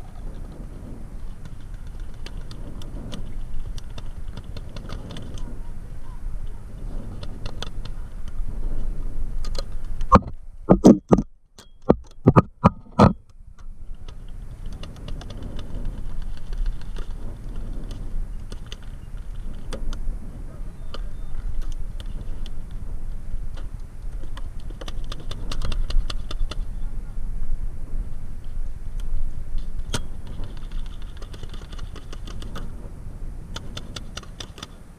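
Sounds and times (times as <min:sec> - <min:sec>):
handling and wind rumble: 0:00.0 - 0:34.9
faint clicks: 0:09.4 - 0:20.0, 0:28.4 - 0:32.9.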